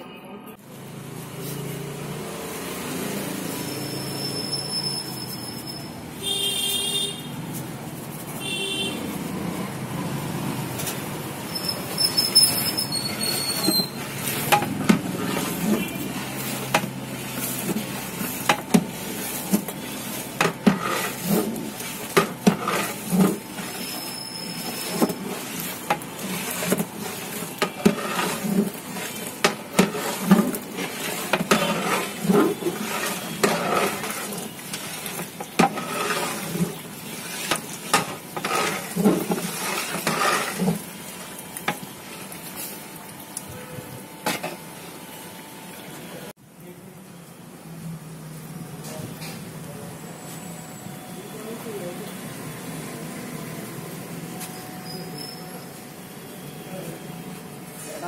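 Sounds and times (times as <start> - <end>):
ladle scraping metal pot: 10.8 - 41.0.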